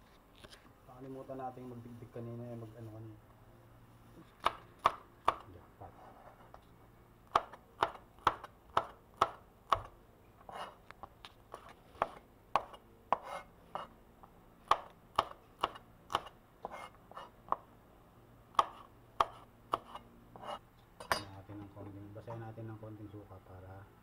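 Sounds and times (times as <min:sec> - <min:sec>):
knife chopping on plastic board: 0:07.3 - 0:09.9, 0:11.5 - 0:13.9, 0:14.6 - 0:17.7, 0:18.5 - 0:20.6.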